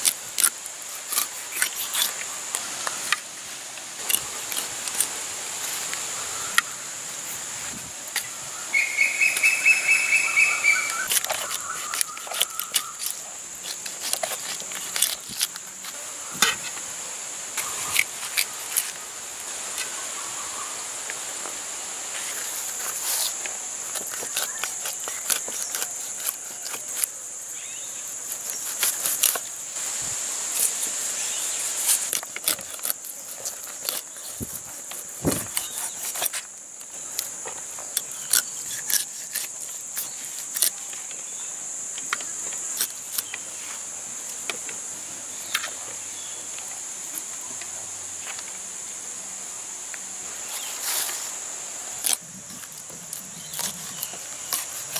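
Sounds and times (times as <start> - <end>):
knife scraping fish scales: 0.0 - 2.3, 9.2 - 16.8, 22.2 - 27.2, 28.2 - 29.5, 30.5 - 36.5, 38.0 - 40.8, 52.0 - 54.9
insects droning: 0.0 - 54.9
bird calling: 6.0 - 7.3, 8.2 - 13.4.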